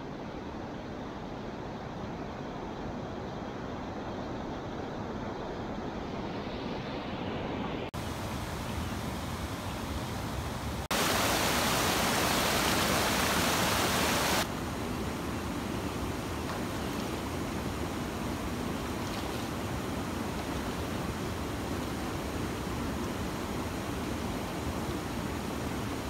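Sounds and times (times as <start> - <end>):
white water churning below weir: 8.0 - 26.0
river water rushing over stones: 10.6 - 26.0.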